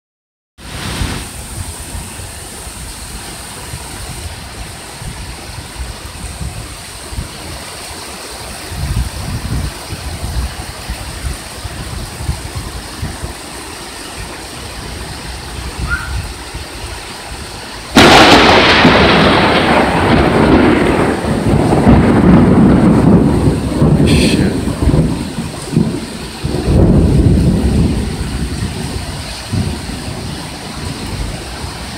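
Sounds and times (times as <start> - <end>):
steady rain: 0.6 - 31.9
thunder rumbling: 14.2 - 31.9
loud thunderclap: 17.9 - 31.8.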